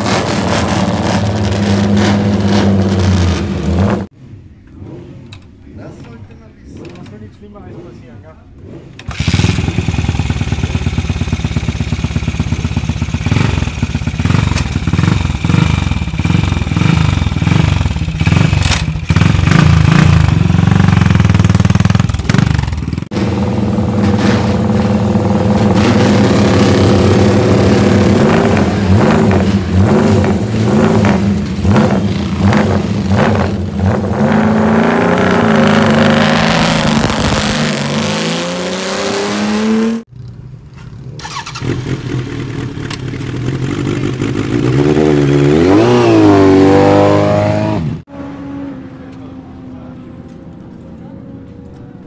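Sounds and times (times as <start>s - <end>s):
racing motorcycle engine revving: 4.7s - 40.1s, 41.3s - 49.9s
motorcycle pulling away: 8.6s - 40.1s, 41.2s - 48.1s.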